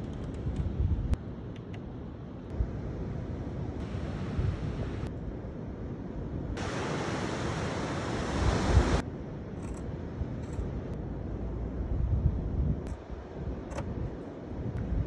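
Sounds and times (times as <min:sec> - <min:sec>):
sea surf: 0:06.6 - 0:09.0.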